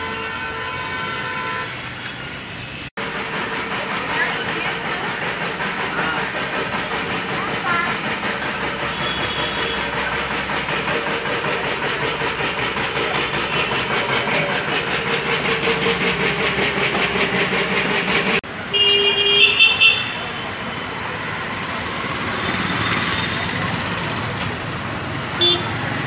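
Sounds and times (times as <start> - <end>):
vehicle horn toots: 0.0 - 1.8, 8.9 - 10.0, 18.7 - 20.4, 25.4 - 25.8
street traffic noise: 0.0 - 26.0
small vehicle engine running: 3.0 - 18.6, 20.1 - 26.0.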